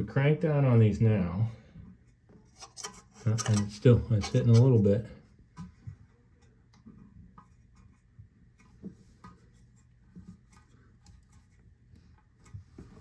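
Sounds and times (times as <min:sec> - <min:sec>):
toilet scraping on tile: 0:02.5 - 0:05.1.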